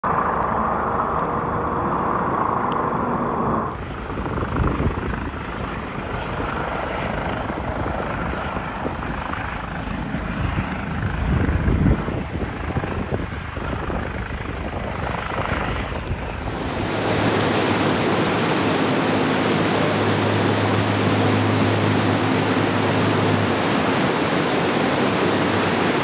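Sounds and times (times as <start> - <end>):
helicopter rotor: 0.1 - 26.0
noisy low rumble: 16.0 - 26.0.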